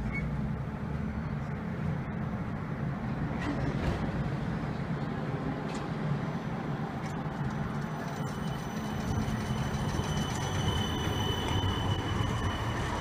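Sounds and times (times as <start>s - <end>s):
tram low rumble: 0.0s - 13.0s
wheel squeal on track: 7.9s - 13.0s.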